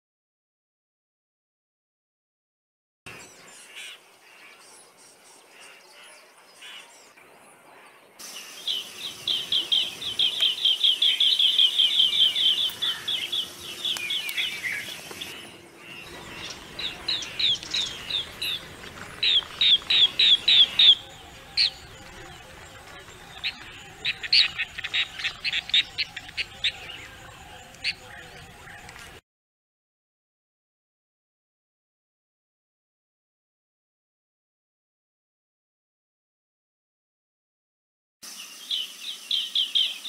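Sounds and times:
birds chirping rapidly: 3.1 - 29.2.

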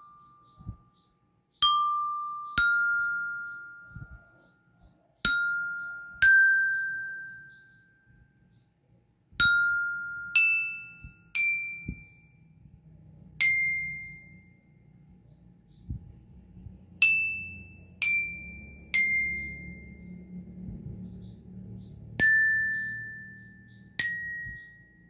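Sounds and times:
bell lyre notes struck with mallet: 1.6 - 4.3, 5.3 - 7.8, 9.4 - 12.2, 17.0 - 20.9, 22.2 - 25.0.

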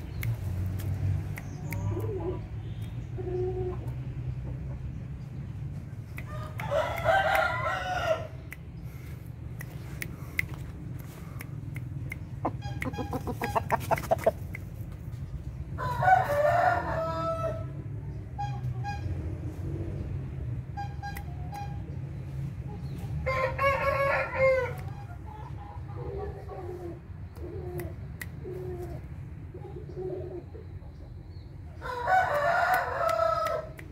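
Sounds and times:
chickens clucking: 0.2 - 17.3, 22.5 - 33.8
rooster crowing: 6.3 - 8.4, 15.8 - 17.8, 23.2 - 24.8, 31.8 - 33.8.

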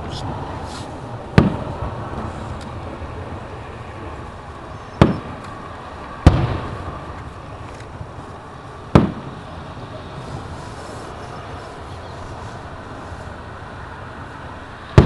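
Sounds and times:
fireworks shells bursting: 5.0 - 5.5.

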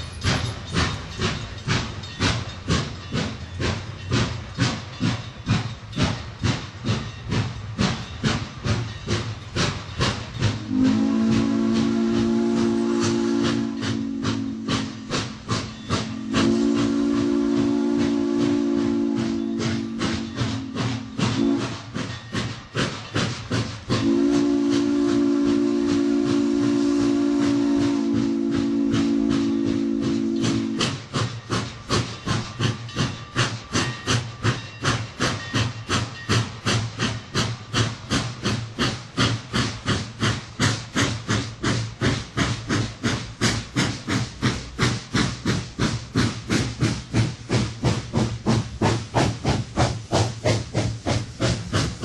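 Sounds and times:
steam locomotive exhaust chuffs: 0.0 - 52.0
steam whistle: 10.6 - 15.2, 16.0 - 21.9, 24.0 - 31.0.

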